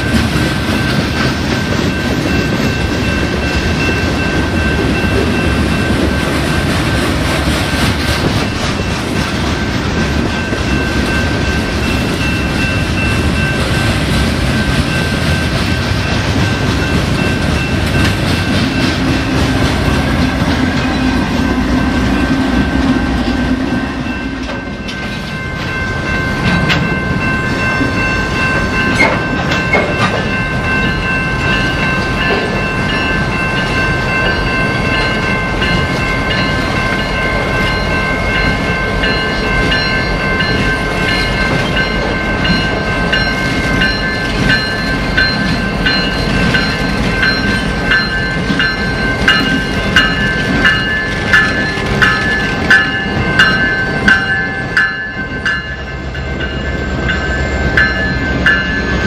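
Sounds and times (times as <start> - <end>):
freight train rumbling past: 0.0 - 59.0
high-pitched ringing tones: 20.8 - 59.0.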